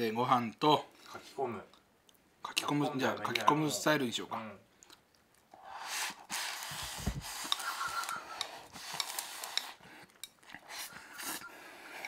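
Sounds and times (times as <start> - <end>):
eating noises: 4.8 - 12.0
chopsticks scraping ceramic bowl: 7.4 - 11.5.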